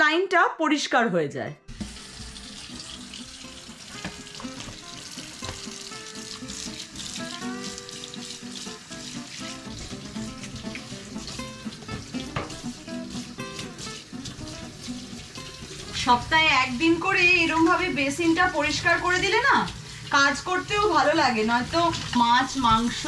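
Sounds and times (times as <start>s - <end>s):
background music: 0.0s - 23.0s
tap water splashing into steel sink: 1.7s - 16.0s, 21.6s - 23.0s.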